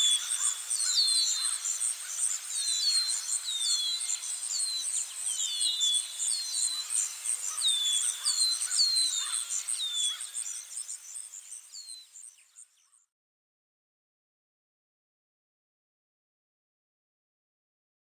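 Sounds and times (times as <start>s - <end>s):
insects chirring: 0.0s - 12.6s.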